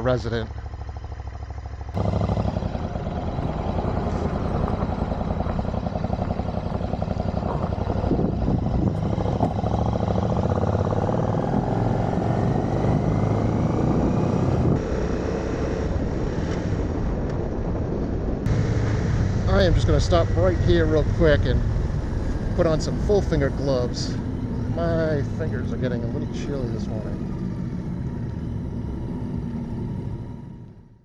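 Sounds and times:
motorcycle engine running: 0.0s - 31.0s
road noise: 0.0s - 31.0s
wind noise: 2.8s - 27.6s.

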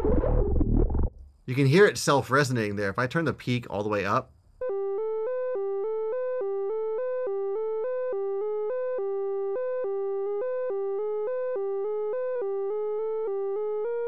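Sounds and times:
fast synth tone arpeggio: 4.6s - 14.0s.

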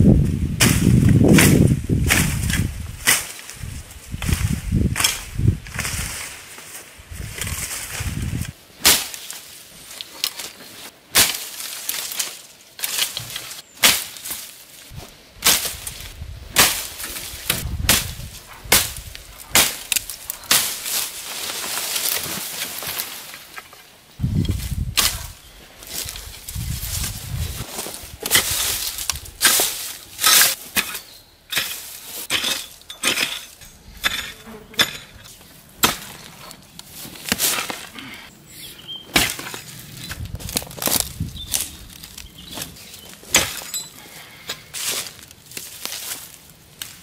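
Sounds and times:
leaves and branches rustling: 0.0s - 47.0s
billhook chopping shrub stems: 0.6s - 3.6s, 4.2s - 6.2s, 8.8s - 23.7s, 24.3s - 38.2s, 39.1s - 47.0s.

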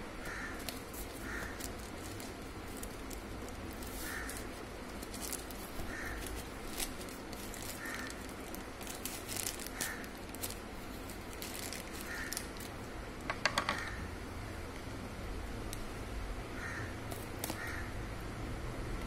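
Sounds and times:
plastic packaging crinkling: 0.2s - 12.9s, 17.1s - 17.7s.

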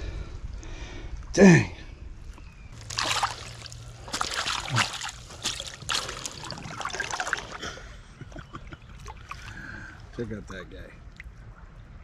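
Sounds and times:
water splashing and sloshing: 2.7s - 12.0s
fish thrashing in a net: 2.8s - 7.6s.

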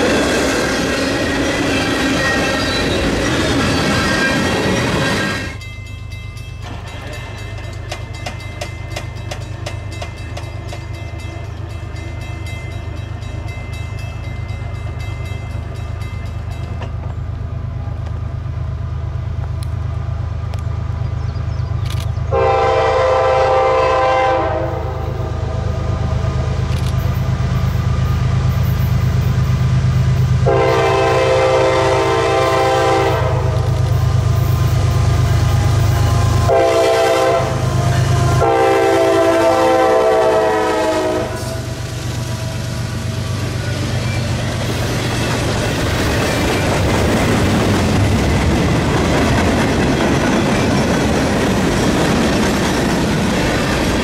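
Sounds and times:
locomotive air horn blasts: 22.3s - 25.7s, 30.4s - 33.8s, 36.0s - 41.8s.

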